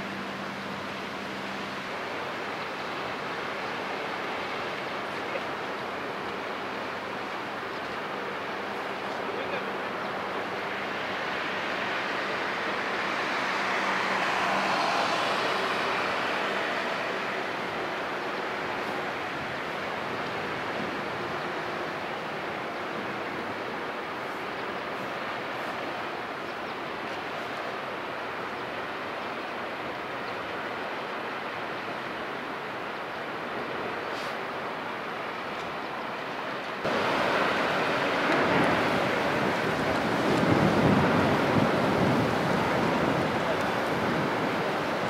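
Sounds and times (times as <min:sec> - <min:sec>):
rushing water wash: 0:00.0 - 0:45.0
ship machinery hum: 0:00.0 - 0:45.0
ship bow wave rushing water: 0:36.8 - 0:45.0.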